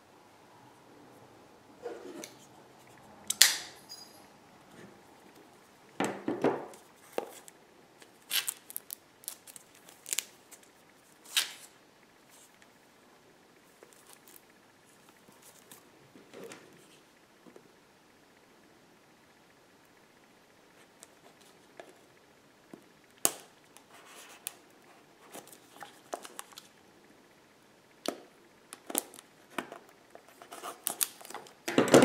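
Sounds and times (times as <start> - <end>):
plastic film crinkling: 6.8 - 12.6, 13.6 - 15.8, 25.3 - 26.7, 28.8 - 31.7.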